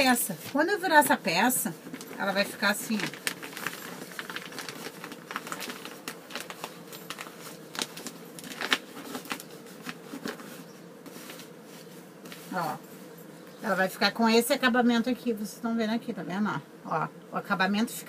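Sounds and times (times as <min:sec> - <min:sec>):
fabric and plastic crinkling: 0:00.0 - 0:12.6.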